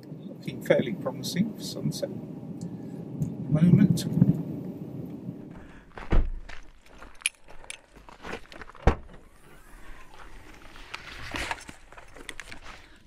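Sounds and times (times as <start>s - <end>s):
heavy thumps: 5.5s - 6.8s
light footsteps: 5.5s - 10.8s.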